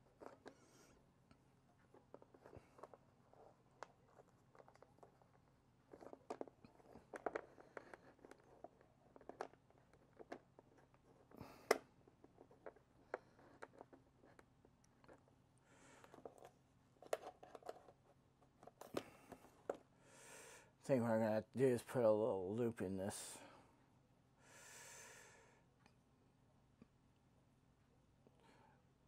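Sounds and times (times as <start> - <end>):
fingers handling thread and cardboard: 0.0 - 19.9.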